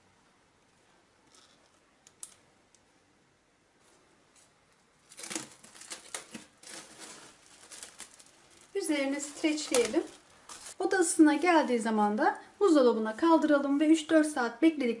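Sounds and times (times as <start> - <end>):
cling film crinkling: 4.4 - 10.8.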